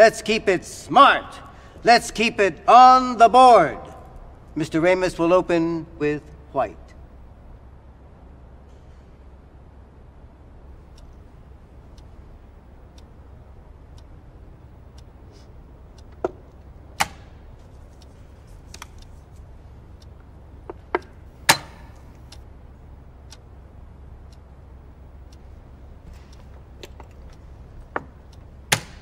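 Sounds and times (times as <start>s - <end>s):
low room hum: 0.0s - 29.0s.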